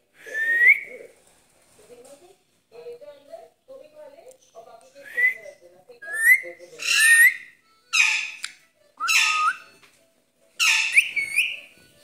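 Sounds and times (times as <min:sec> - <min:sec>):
parakeet whistles: 0:06.0 - 0:09.7, 0:10.6 - 0:11.7
parakeet harsh squawks: 0:06.1 - 0:09.7, 0:10.6 - 0:11.7.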